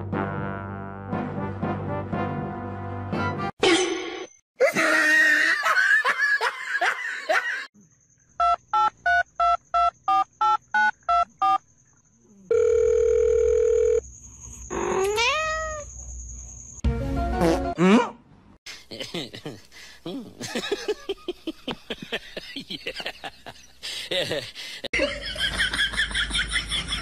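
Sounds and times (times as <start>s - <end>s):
cat meowing: 15.0s - 15.9s.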